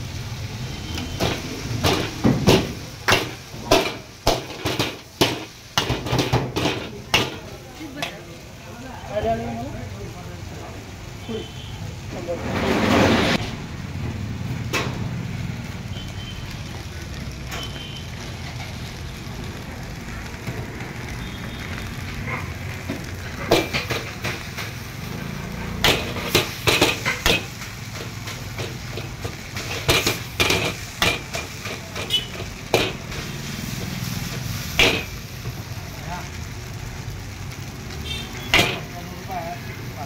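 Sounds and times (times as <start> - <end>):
steel ladle clanking on a wok: 25.8 - 33.1, 34.8 - 35.2, 38.5 - 38.9.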